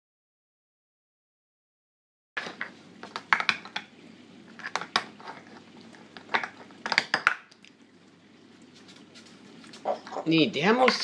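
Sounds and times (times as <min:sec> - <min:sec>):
plastic cups clacking: 0:02.4 - 0:03.9, 0:04.5 - 0:07.6.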